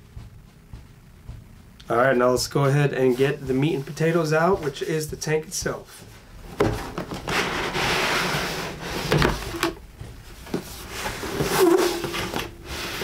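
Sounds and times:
cardboard scraping and rubbing: 0:02.9 - 0:13.0.

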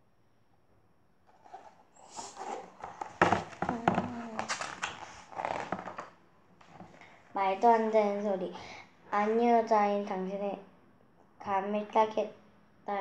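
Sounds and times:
book pages rustling: 0:01.3 - 0:07.2.

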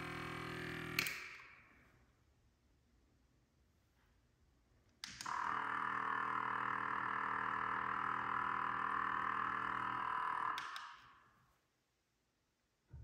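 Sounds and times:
air pump humming: 0:00.0 - 0:01.1, 0:05.2 - 0:10.8.

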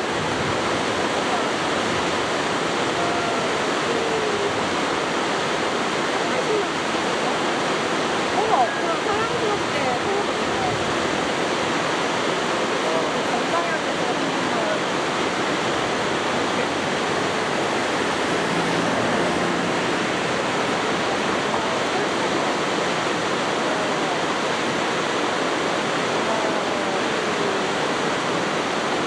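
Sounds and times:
waterfall rushing: 0:00.0 - 0:29.0.

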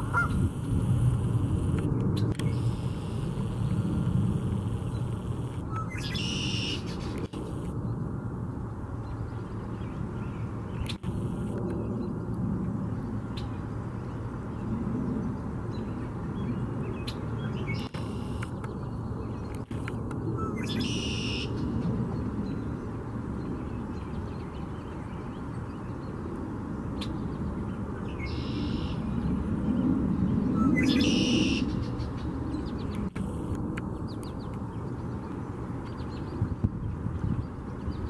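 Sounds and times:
blackbird buzzy trilling song: 0:04.8 - 0:07.2, 0:20.4 - 0:21.7, 0:28.0 - 0:29.2, 0:30.5 - 0:33.1.

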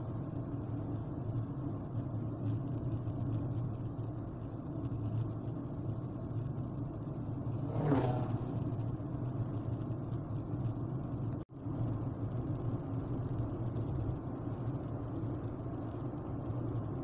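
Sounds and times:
car cabin road and engine rumble: 0:00.0 - 0:17.0
passing car whoosh: 0:07.4 - 0:09.4.

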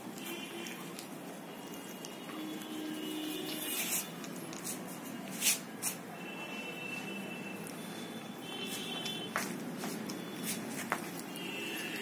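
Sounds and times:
scratchy scuffs: 0:08.6 - 0:11.3.

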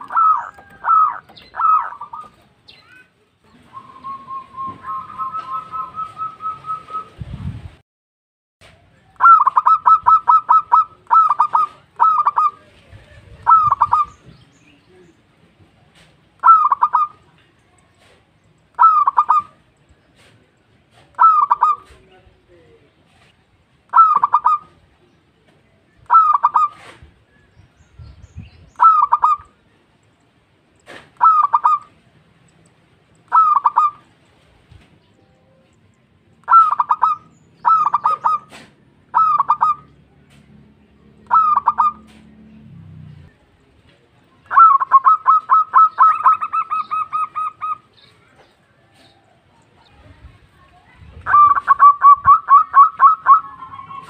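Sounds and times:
dove cooing: 0:00.0 - 0:02.5, 0:09.2 - 0:14.3, 0:16.4 - 0:17.2, 0:18.8 - 0:19.6, 0:20.9 - 0:22.0, 0:23.9 - 0:24.8, 0:26.1 - 0:27.1, 0:28.8 - 0:29.6, 0:31.2 - 0:32.0, 0:33.3 - 0:34.1, 0:36.4 - 0:40.0, 0:41.2 - 0:42.3, 0:44.5 - 0:47.9, 0:51.2 - 0:54.0.

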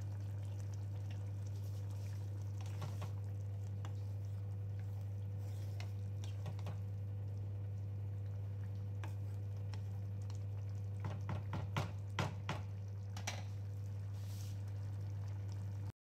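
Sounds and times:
curry simmering pops: 0:00.0 - 0:15.9
steady low hum: 0:00.0 - 0:15.9
spatula knocking and scraping pot: 0:11.0 - 0:13.4.

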